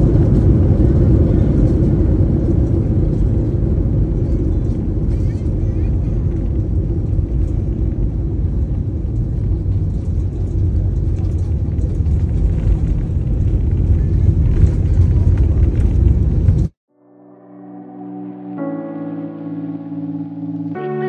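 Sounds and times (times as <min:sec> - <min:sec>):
airliner rolling on runway: 0:00.0 - 0:16.8.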